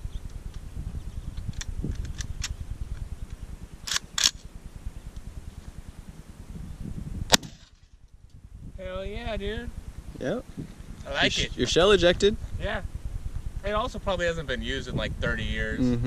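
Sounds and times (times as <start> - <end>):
wind rumble on microphone: 0.0 - 16.0
shotgun action clicks: 3.9 - 4.4
shotgun shot: 7.3 - 7.8.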